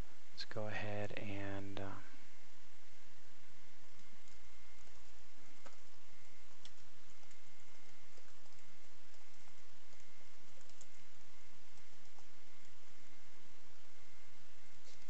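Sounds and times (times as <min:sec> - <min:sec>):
steady background hiss: 0:00.0 - 0:15.0
keyboard typing: 0:04.0 - 0:12.8.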